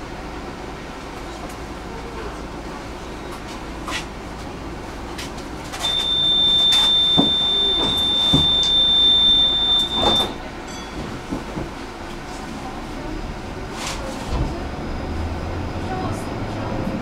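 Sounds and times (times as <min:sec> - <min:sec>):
tram door warning tone: 0:05.7 - 0:12.0.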